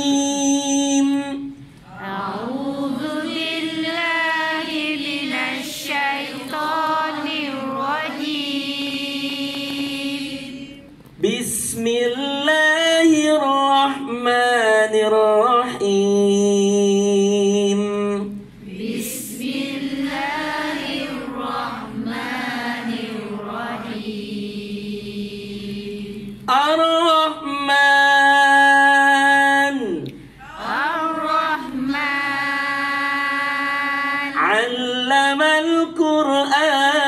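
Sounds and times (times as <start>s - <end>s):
man chanting melodic recitation: 0.0s - 1.6s, 11.2s - 18.4s, 26.5s - 30.3s, 34.3s - 37.0s.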